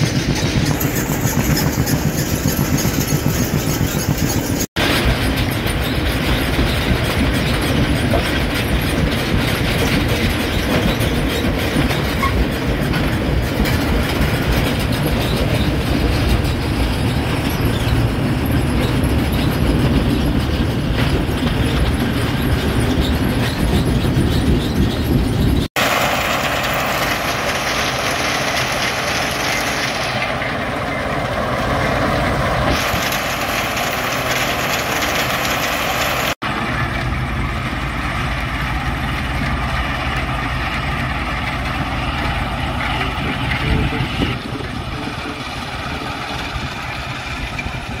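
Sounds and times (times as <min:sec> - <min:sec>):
rock crushing machine: 0:17.5 - 0:31.9, 0:32.5 - 0:37.2.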